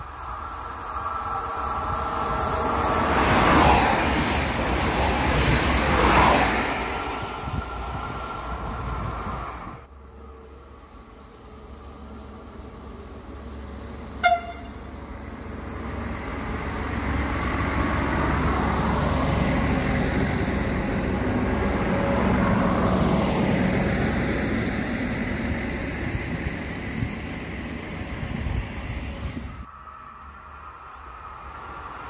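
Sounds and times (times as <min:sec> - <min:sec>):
diesel railcar passing: 0:00.0 - 0:32.0
train horn toot: 0:14.2 - 0:14.8.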